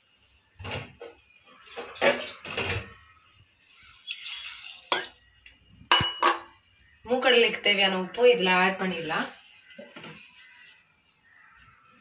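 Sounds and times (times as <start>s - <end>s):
water pouring and splashing: 0.5s - 5.4s.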